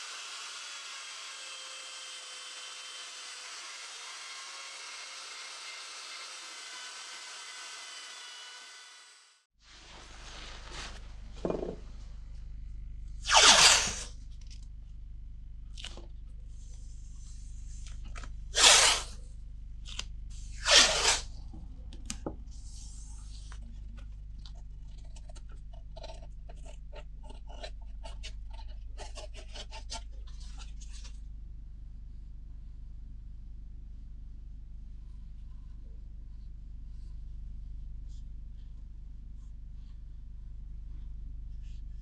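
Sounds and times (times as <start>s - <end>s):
masking tape ripping off roll: 13.2s - 14.1s, 18.5s - 19.2s, 19.9s - 21.3s.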